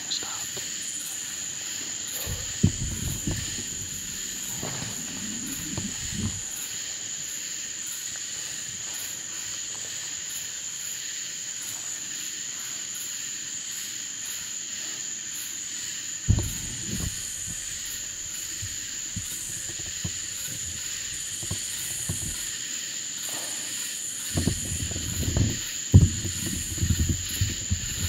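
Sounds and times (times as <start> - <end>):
insect pulsing call: 0.0 - 28.0
insects trilling: 0.0 - 28.0
low thumps: 2.2 - 6.6, 16.3 - 22.6, 24.3 - 28.0
sharp thump: 16.3 - 22.4.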